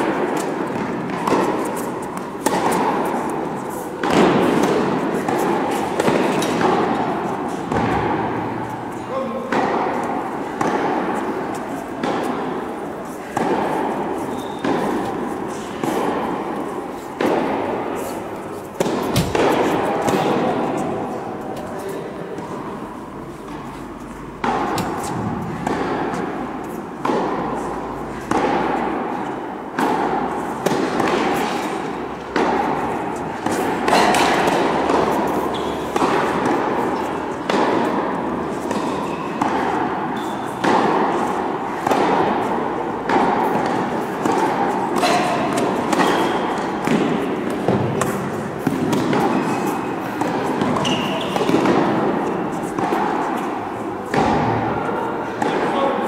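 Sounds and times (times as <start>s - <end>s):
tennis ball bouncing: 0.0s - 21.6s, 22.4s - 55.8s
tennis ball hit by rackets: 0.0s - 21.7s, 24.4s - 55.9s.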